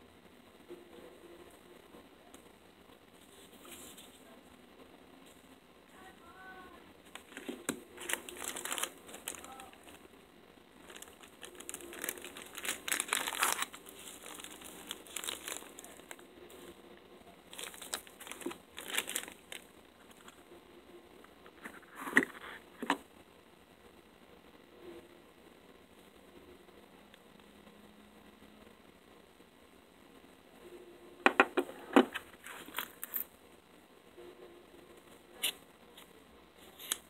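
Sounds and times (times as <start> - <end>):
plastic packaging crinkling: 7.1 - 10.0, 10.8 - 16.2, 17.5 - 20.4.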